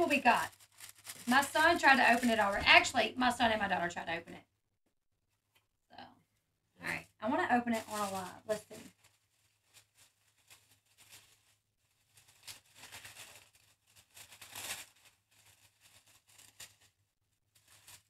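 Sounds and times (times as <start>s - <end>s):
tissue paper rustling: 0.0s - 3.6s, 7.2s - 18.0s.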